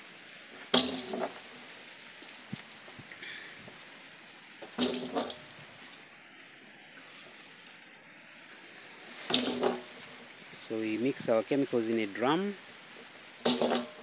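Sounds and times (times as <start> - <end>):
liquid splashing into plastic drum: 0.6 - 1.5, 4.6 - 5.5, 9.2 - 10.1, 13.4 - 14.0.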